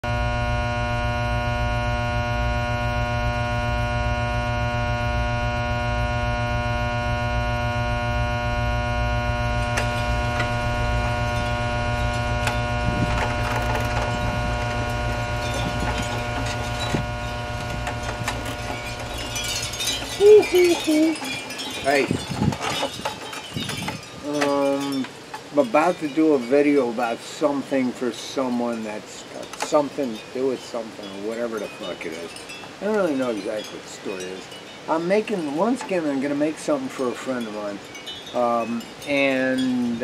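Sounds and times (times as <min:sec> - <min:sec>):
electronic drone: 0:00.0 - 0:25.9.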